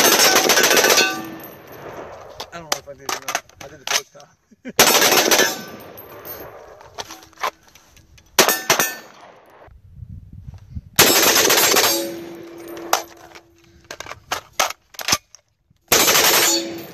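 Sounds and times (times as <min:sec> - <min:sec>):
steel plate ringing: 0:00.0 - 0:01.9, 0:11.6 - 0:13.6, 0:16.2 - 0:16.9
rapid rifle fire: 0:00.0 - 0:02.4, 0:04.8 - 0:06.8, 0:11.0 - 0:12.2, 0:15.9 - 0:16.9.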